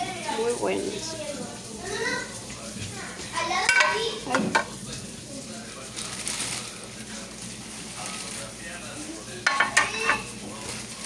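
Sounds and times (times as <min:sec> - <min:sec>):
frying pan clanking on pan: 0:03.6 - 0:04.7, 0:09.4 - 0:10.4.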